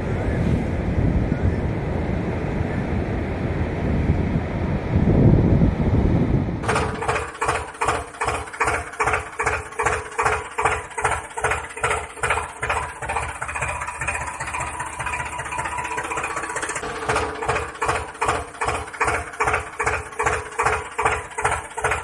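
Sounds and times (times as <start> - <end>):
wind on microphone: 0.0 - 7.3
tractor engine chugging: 6.6 - 22.0.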